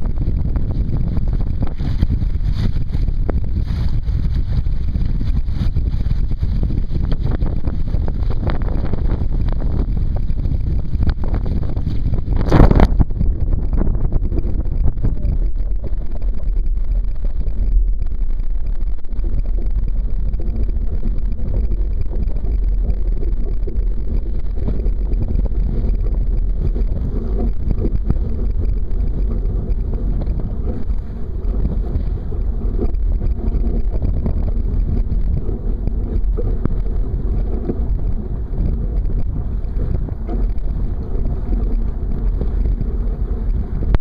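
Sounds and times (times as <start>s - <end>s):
water splashing along boat hull: 0.0s - 44.0s
wind buffeting microphone: 0.0s - 44.0s.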